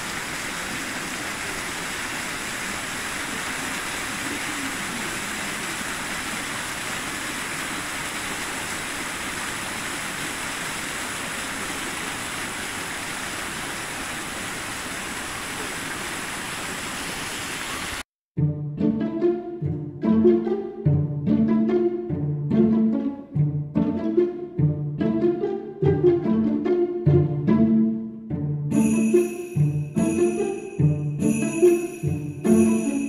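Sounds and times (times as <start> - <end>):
flowing water rushing: 0.0 - 18.0, 28.7 - 33.0
plucked string music: 18.4 - 29.1.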